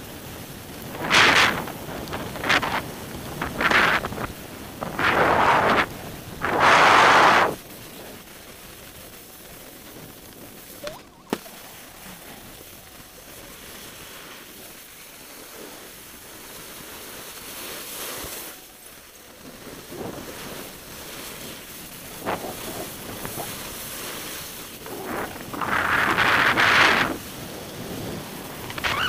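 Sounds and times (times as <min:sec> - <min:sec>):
wind on microphone: 0:00.0 - 0:14.4, 0:19.4 - 0:29.0
skis sliding over snow: 0:00.0 - 0:29.0
sharp scrapes on snow: 0:13.4 - 0:29.0.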